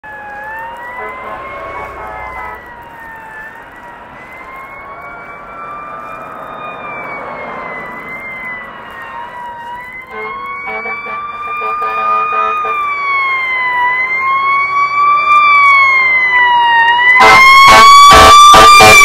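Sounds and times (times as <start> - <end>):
siren wailing: 0.0 - 19.0.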